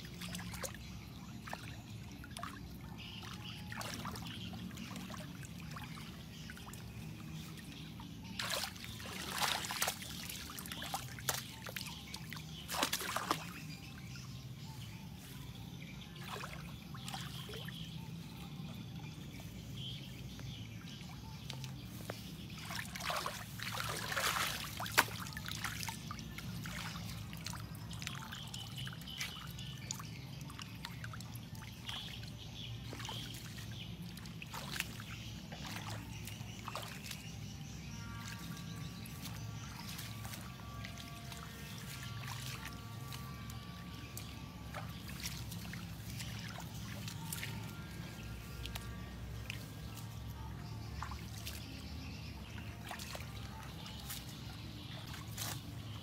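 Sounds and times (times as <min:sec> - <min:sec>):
water trickling: 0:00.0 - 0:56.0
hands splashing in muddy water: 0:08.3 - 0:13.8, 0:21.4 - 0:56.0.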